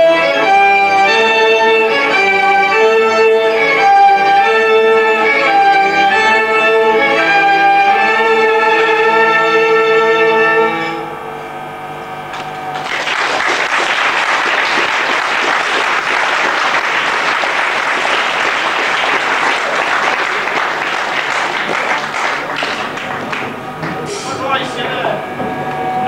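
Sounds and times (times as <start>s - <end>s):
audience clapping: 12.3s - 24.4s.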